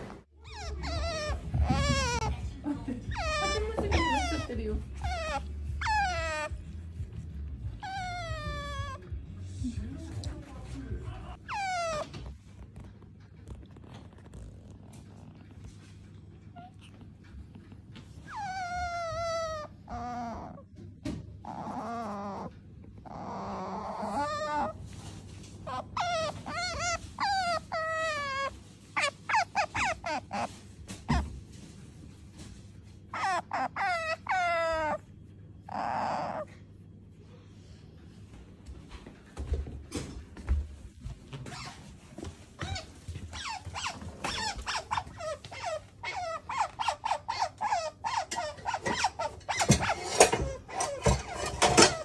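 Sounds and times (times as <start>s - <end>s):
otter squeaky calls: 0.4s - 9.0s, 11.3s - 12.4s, 18.2s - 20.6s, 25.7s - 30.5s, 33.2s - 35.0s, 42.6s - 52.0s.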